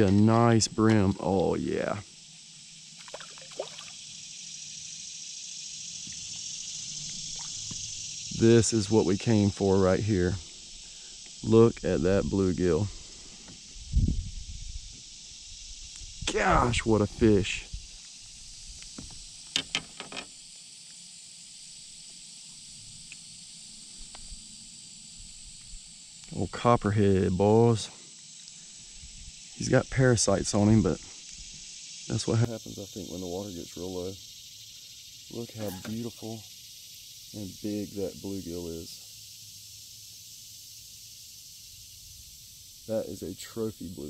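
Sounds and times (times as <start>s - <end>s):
high-pitched insect hiss: 0.0s - 44.0s
water splashing and dripping: 3.0s - 4.0s, 7.2s - 7.8s.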